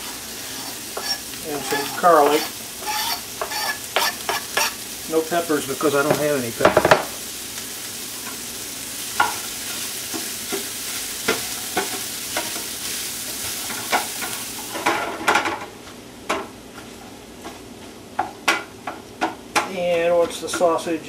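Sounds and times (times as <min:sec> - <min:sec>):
food sizzling in a frying pan: 0:00.0 - 0:15.6
spatula scraping and tapping pan: 0:00.5 - 0:04.8, 0:09.2 - 0:12.7.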